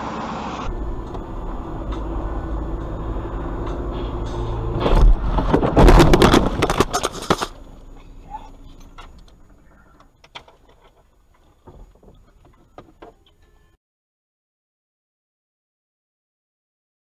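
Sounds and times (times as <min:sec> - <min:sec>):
car crash: 0:00.0 - 0:07.8
small knocks and rattles: 0:08.6 - 0:13.4.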